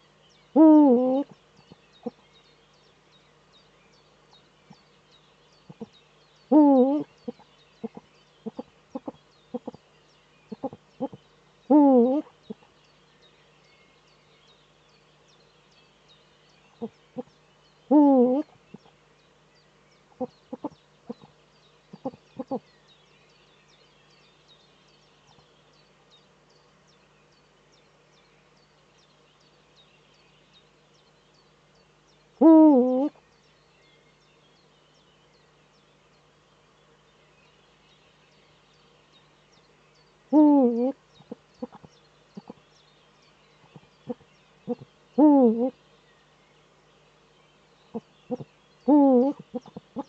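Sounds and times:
owl deep calls: 0:00.5 - 0:01.4, 0:05.7 - 0:05.9, 0:06.5 - 0:09.8, 0:10.5 - 0:12.7, 0:16.8 - 0:17.3, 0:17.9 - 0:18.9, 0:20.1 - 0:21.3, 0:21.9 - 0:22.6, 0:32.4 - 0:33.2, 0:40.3 - 0:42.6, 0:43.7 - 0:45.8, 0:47.9 - 0:50.0.

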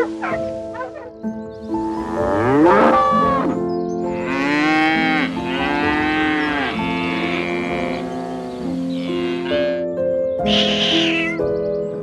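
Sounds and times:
background music: 0:00.0 - 0:12.0
bison lowing: 0:02.3 - 0:09.9.

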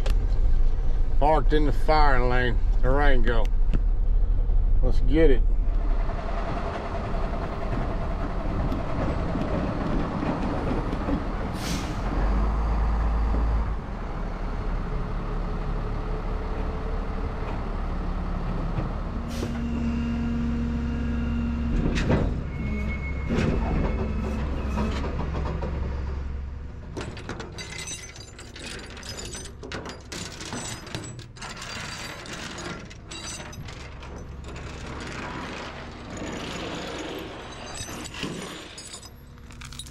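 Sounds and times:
tow truck engine running: 0:05.5 - 0:29.7.

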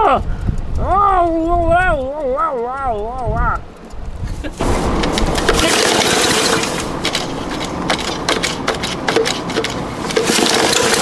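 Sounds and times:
sharp ticks: 0:00.0 - 0:11.0
lawn mower engine running: 0:04.5 - 0:11.0.

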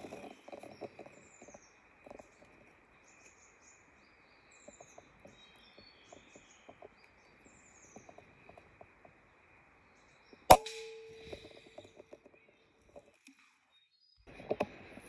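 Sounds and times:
small birds calling: 0:00.0 - 0:15.0
faint ticks: 0:04.5 - 0:09.5.

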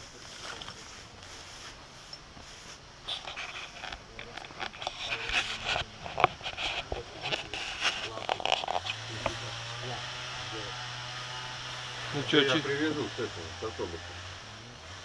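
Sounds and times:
footsteps on forest ground: 0:00.0 - 0:03.0
rustling: 0:00.0 - 0:13.1.

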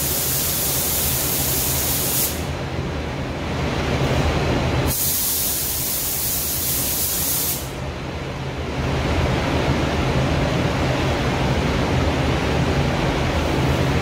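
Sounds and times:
sharp high hiss: 0:00.0 - 0:02.5, 0:04.9 - 0:07.8.

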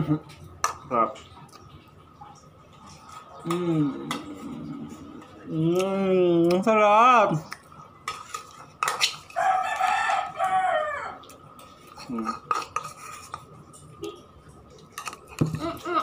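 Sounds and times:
rooster crowing: 0:09.3 - 0:11.3
spoon scraping ceramic bowl: 0:12.0 - 0:13.6.

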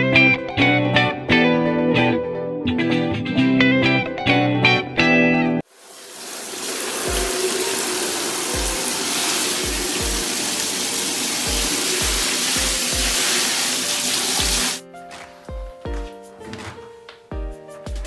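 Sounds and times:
shower head spraying water into tub: 0:05.8 - 0:14.8
background music with low beat: 0:09.6 - 0:10.3, 0:14.4 - 0:18.0.

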